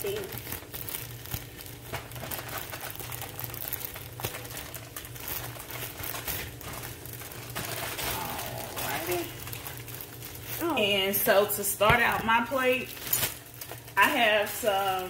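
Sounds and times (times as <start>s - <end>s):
low appliance hum: 0.0s - 15.0s
plastic bag crinkling: 0.0s - 15.0s.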